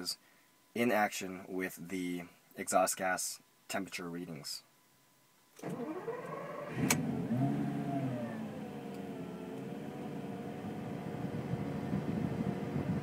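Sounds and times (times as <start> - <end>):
car engine starting and idling: 5.6 - 13.0.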